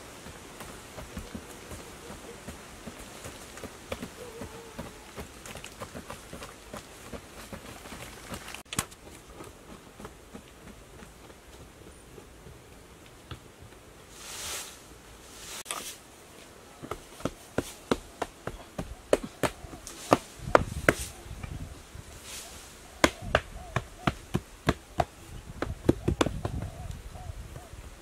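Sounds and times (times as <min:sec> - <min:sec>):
loose soil being scraped: 0:14.1 - 0:16.0, 0:19.7 - 0:21.4, 0:22.1 - 0:22.8
digging tool striking hard earth: 0:16.8 - 0:21.2.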